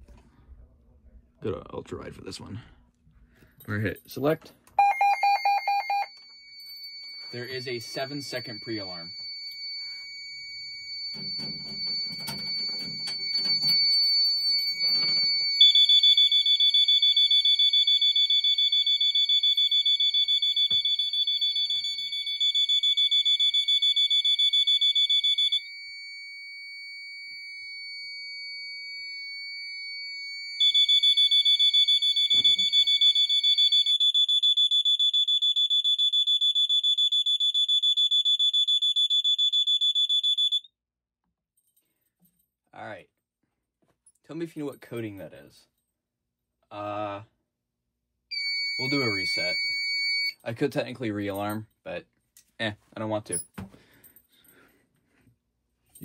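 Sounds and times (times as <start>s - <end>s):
fire alarm horn buzzing pulses: 4.8s - 40.7s, 48.3s - 50.4s
weather radio alert tone: 7.2s - 9.2s, 48.8s - 49.8s.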